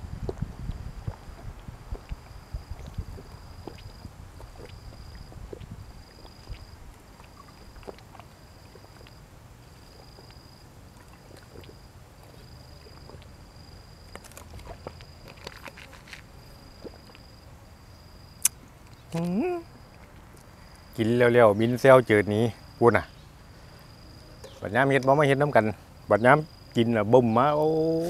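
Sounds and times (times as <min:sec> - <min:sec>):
insect chirping: 0:00.0 - 0:28.0
faint clicks of eating: 0:00.2 - 0:09.2, 0:09.8 - 0:13.4.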